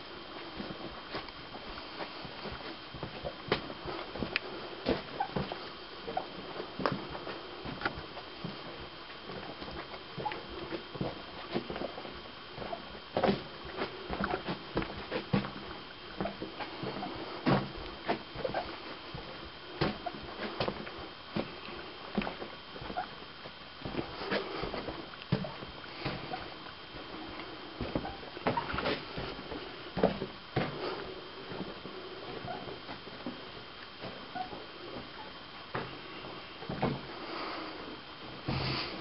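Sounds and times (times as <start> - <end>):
faint steady high tone: 34.3 - 35.4.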